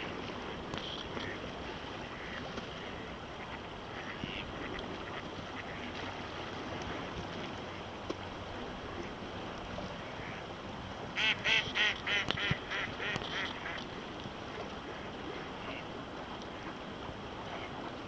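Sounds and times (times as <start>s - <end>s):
duck quacking: 11.2s - 13.8s.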